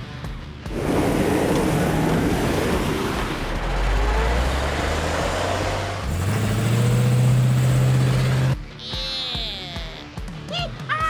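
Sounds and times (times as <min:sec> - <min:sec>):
noisy rumble: 0:00.7 - 0:08.6.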